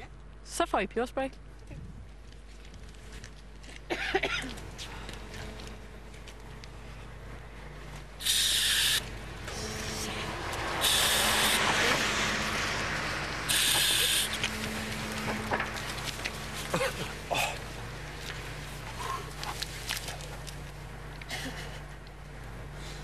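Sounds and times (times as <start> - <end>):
pepper spray hissing bursts: 8.2 - 12.0, 13.5 - 14.4.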